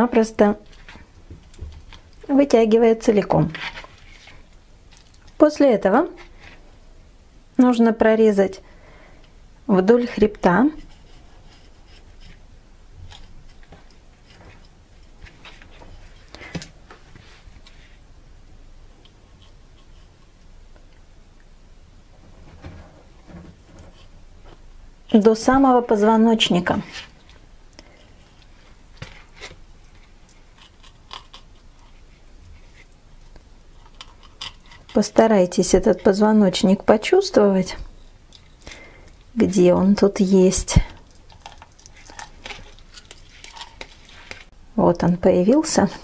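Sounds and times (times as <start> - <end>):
blade clicking and scraping on bones: 29.8 - 32.0, 32.8 - 35.2, 41.0 - 44.5.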